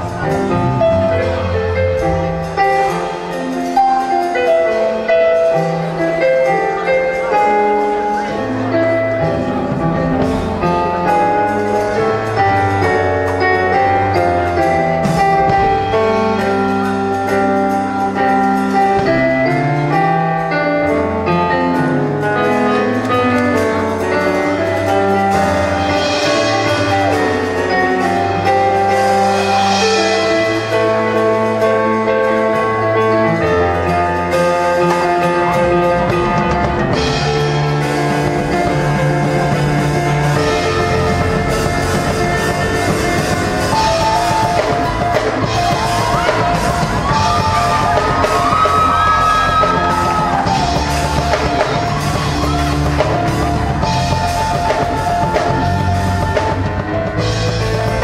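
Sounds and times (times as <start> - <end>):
keyboard playing piano chords: 0.0 - 58.0
cymbals and drums: 34.4 - 58.0.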